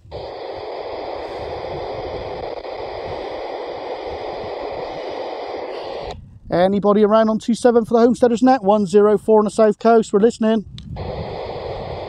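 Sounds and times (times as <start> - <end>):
radio static hiss: 0.0 - 6.2, 11.0 - 12.0.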